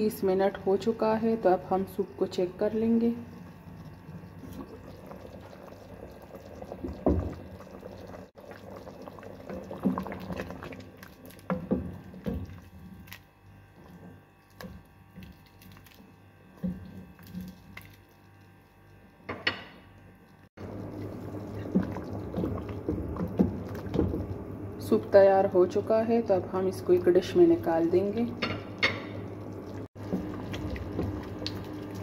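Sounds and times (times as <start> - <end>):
soup sloshing: 3.3 - 13.3, 20.6 - 24.9, 28.0 - 32.0.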